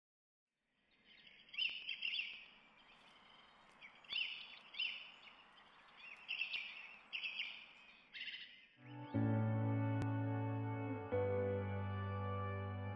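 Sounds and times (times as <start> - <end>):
songbirds chirping: 0.7 - 10.1
faint outdoor hiss: 0.8 - 8.7.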